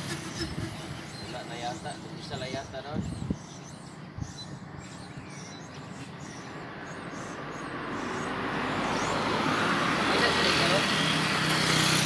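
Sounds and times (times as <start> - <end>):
car approaching: 5.8 - 12.0.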